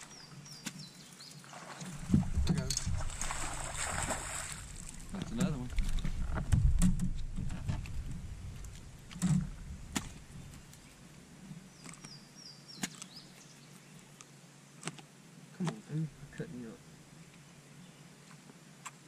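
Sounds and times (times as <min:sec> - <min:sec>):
low rumble: 0:02.0 - 0:10.8.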